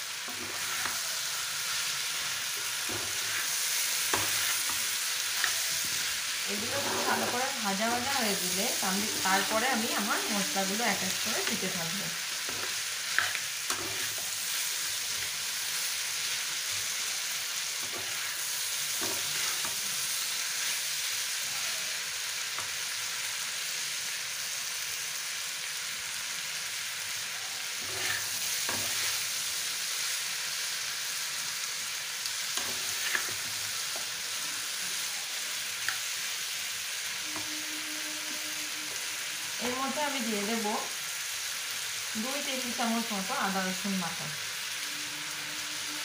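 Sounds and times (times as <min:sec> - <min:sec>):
food sizzling in oil: 0:00.0 - 0:46.0
spatula scraping and tapping pan: 0:02.6 - 0:06.0, 0:06.6 - 0:08.1, 0:12.4 - 0:14.3, 0:19.0 - 0:19.8, 0:27.8 - 0:29.2, 0:32.6 - 0:34.1.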